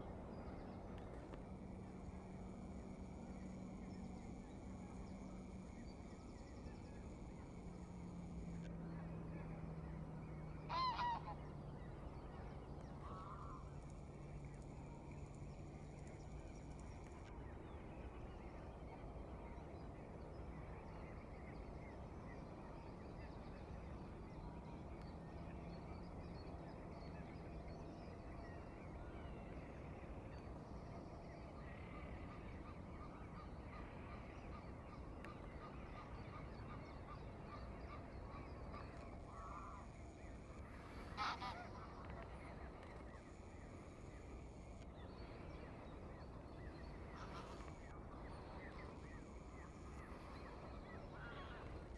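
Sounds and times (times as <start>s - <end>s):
low background hum: 0.0s - 51.9s
geese honking: 10.7s - 11.4s, 40.8s - 42.8s, 47.2s - 51.8s.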